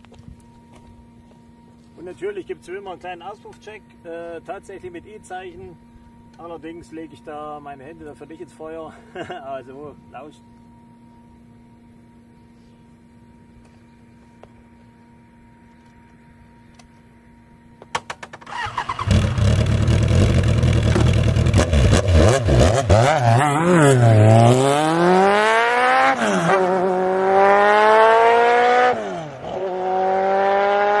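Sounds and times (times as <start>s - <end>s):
electric starter cranking: 18.2s - 22.3s
motorcycle engine revving: 18.4s - 31.0s
motorcycle accelerating through gears: 18.6s - 31.0s.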